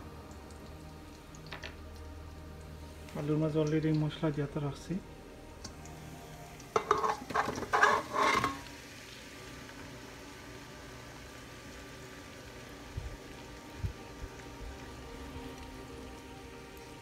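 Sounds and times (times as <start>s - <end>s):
potatoes sizzling: 0.0s - 17.0s
spoon scraping metal pot: 6.7s - 8.7s.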